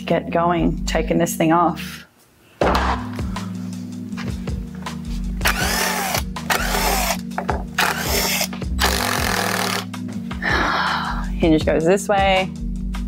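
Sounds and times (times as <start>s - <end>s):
cordless driver spinning: 5.4s - 7.2s, 7.8s - 9.9s.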